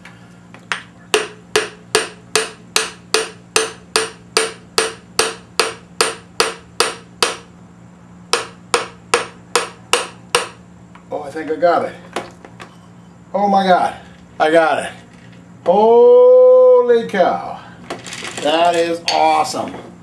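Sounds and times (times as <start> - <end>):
hammer handle tapping metal: 1.1 - 7.4, 8.3 - 10.6.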